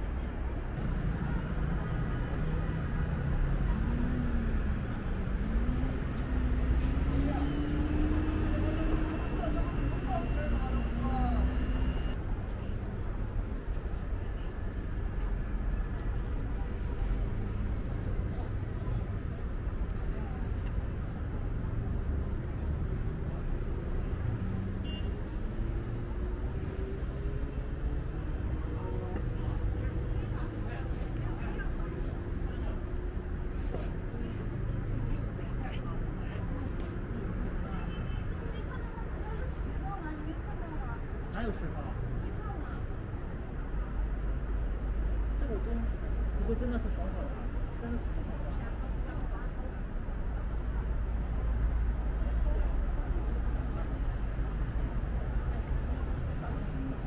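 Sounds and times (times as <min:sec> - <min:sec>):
passing traffic rumble: 0:00.0 - 0:57.0
engine speeding up: 0:02.9 - 0:12.2.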